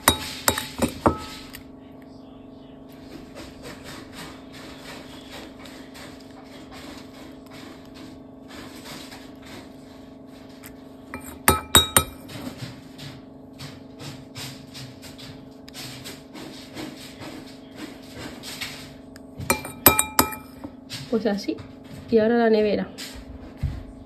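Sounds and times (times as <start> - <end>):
spoon clinking against glass: 0.0 - 1.6, 11.2 - 12.3, 19.5 - 20.7
spoon scraping glass dish: 0.0 - 1.6, 10.6 - 12.4, 19.5 - 20.7
steady low hum: 0.0 - 6.3, 9.4 - 15.7, 17.6 - 21.9.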